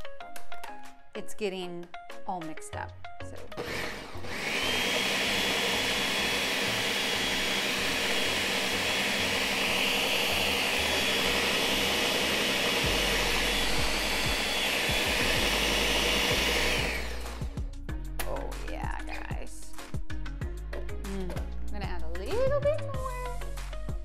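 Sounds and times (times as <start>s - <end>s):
blender running at high speed: 3.6s - 17.6s.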